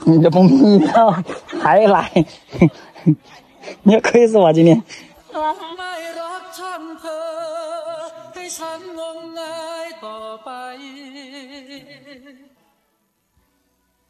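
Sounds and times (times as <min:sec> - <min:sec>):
person singing with vibrato: 0:04.9 - 0:12.6.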